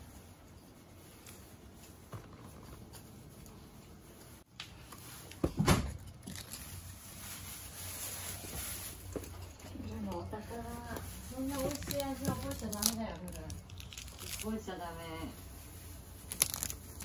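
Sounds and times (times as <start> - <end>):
puppy paws pattering on wood: 8.4 - 13.6.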